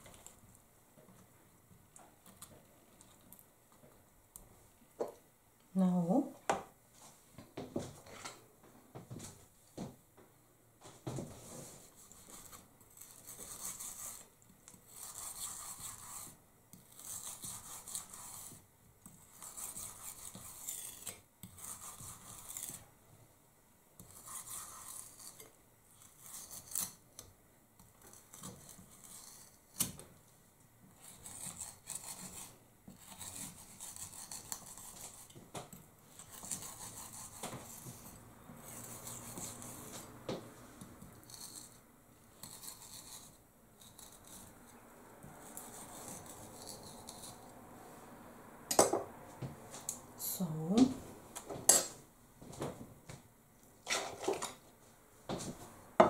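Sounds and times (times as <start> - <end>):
knife scraping chicken skin: 19.2 - 22.8, 24.0 - 27.0.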